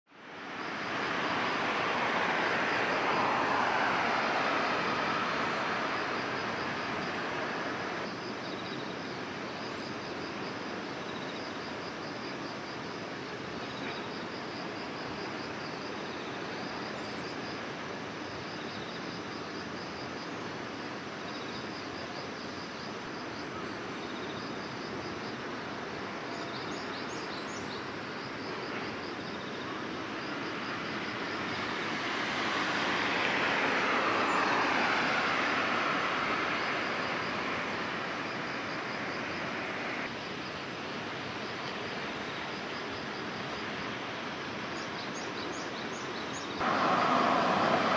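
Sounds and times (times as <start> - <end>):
vehicle passing by: 0.4 - 8.0, 30.8 - 40.1, 46.6 - 47.9.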